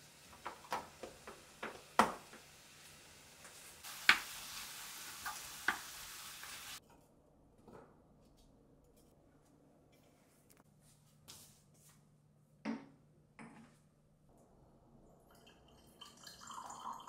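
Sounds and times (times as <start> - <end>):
food sizzling in a frying pan: 0.0 - 6.8.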